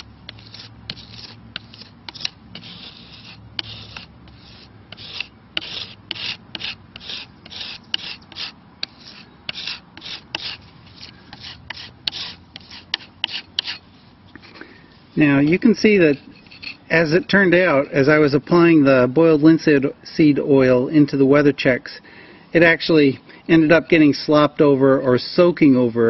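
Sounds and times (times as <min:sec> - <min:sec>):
putty knife scraping wood: 0:00.0 - 0:13.8.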